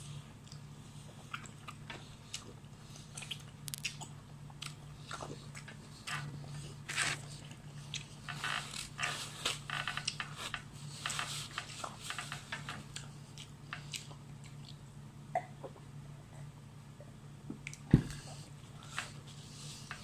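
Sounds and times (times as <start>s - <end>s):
steady low hum: 0.0s - 20.0s
chewing and lip-smacking: 0.4s - 8.2s, 12.8s - 15.8s.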